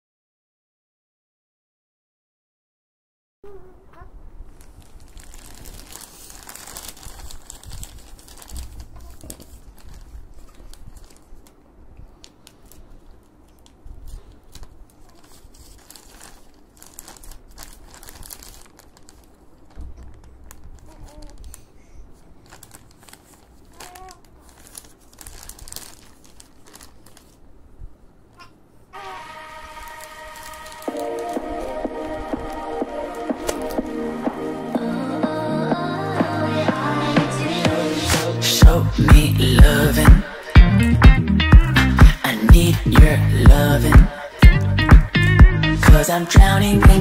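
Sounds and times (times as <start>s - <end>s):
plastic wrapper crinkling: 4.4s - 27.7s, 28.4s - 34.2s.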